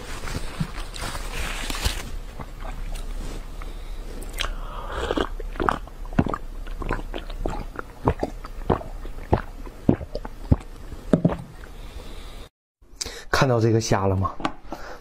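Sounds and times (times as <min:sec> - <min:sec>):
person gulping from a glass: 0:04.2 - 0:11.8.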